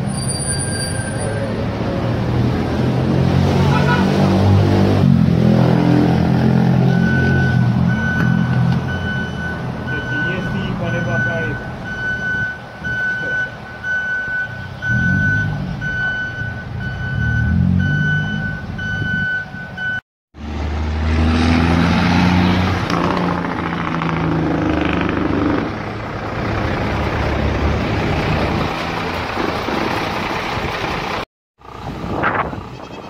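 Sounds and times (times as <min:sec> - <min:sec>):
diesel truck engine: 0:00.0 - 0:33.0
road and wind noise: 0:00.0 - 0:33.0
reversing alarm beeping: 0:06.8 - 0:20.0.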